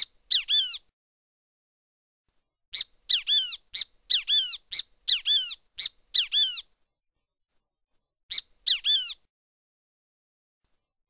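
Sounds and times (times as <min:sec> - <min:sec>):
bird shrill calls: 0:00.0 - 0:00.9, 0:02.8 - 0:06.7, 0:08.3 - 0:09.3.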